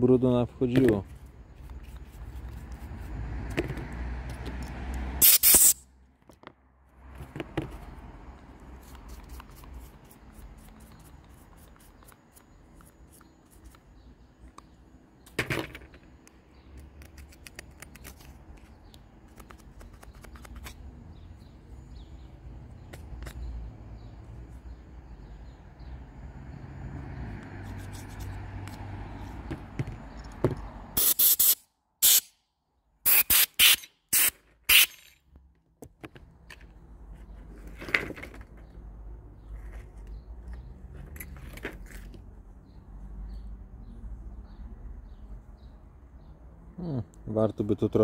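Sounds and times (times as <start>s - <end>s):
paintbrush sweeping plastic: 1.5s - 3.2s, 8.8s - 13.9s
screwdriver clicking and scraping: 33.1s - 35.2s.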